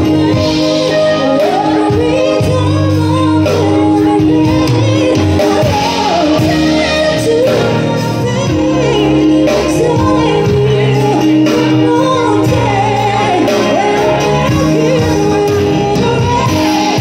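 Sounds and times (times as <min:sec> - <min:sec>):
live pop band playing: 0:00.0 - 0:17.0
woman singing: 0:00.0 - 0:17.0.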